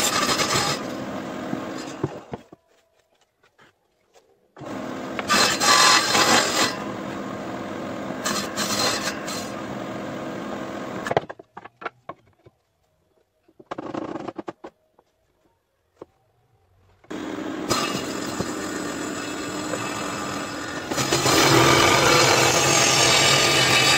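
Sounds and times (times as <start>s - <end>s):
table saw ripping wood: 0.0s - 2.3s, 4.6s - 9.8s, 17.1s - 23.9s.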